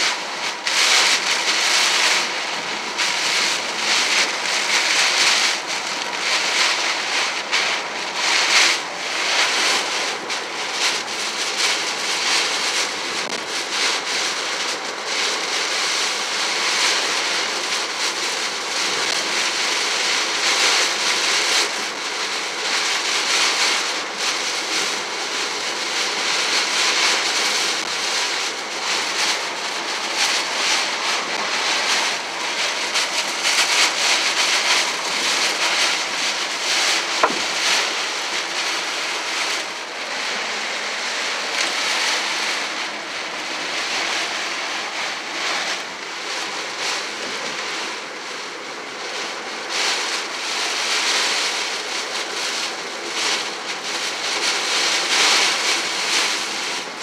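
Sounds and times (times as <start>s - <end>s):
heavy rain on car windshield: 0.0s - 57.0s
tyre spray on wet road: 27.4s - 46.0s.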